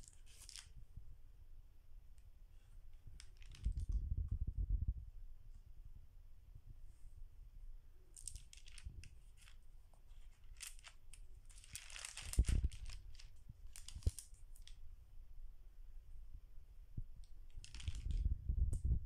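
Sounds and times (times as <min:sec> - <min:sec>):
stiff pages rustling: 0:00.0 - 0:00.8, 0:03.0 - 0:04.0, 0:08.2 - 0:14.8, 0:17.6 - 0:18.2.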